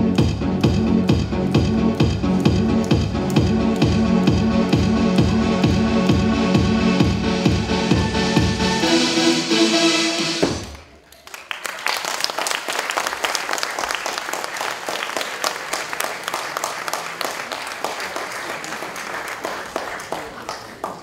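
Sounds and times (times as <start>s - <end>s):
posing music: 0.0s - 10.8s
audience applauding: 10.6s - 21.0s.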